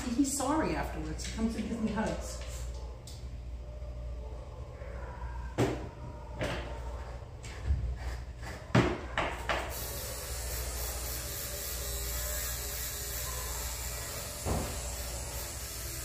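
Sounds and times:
electric clippers buzzing: 9.7 - 16.0.

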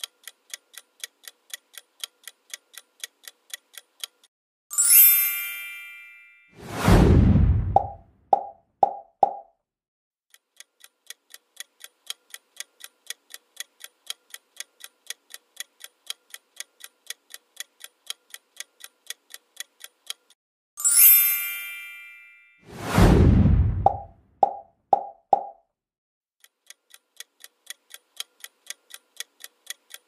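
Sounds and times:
clock ticking: 0.0 - 4.3, 10.3 - 20.4, 26.4 - 30.0
bright chime: 4.7 - 6.6, 20.8 - 22.6.

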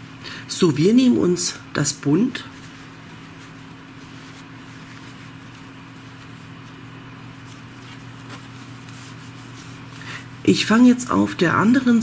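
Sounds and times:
low electrical hum: 0.0 - 12.0
yarn rustling: 2.2 - 11.8.

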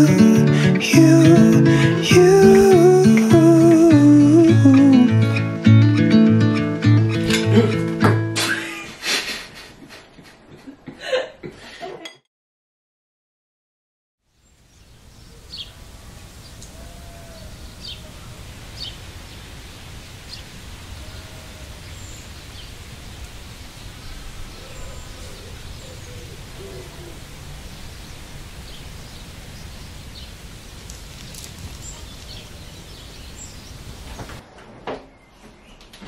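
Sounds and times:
birds chirping: 14.3 - 34.4
low bird calls: 14.8 - 19.6, 20.2 - 34.4.

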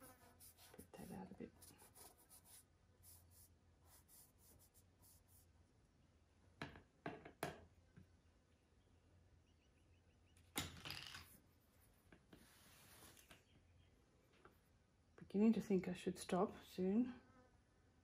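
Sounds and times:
brush scratching paper: 0.0 - 5.5.

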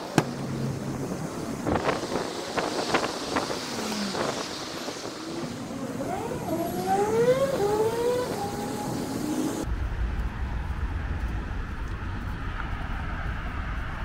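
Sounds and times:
road traffic: 0.0 - 14.0
vehicle engine rising in pitch: 0.4 - 13.0.

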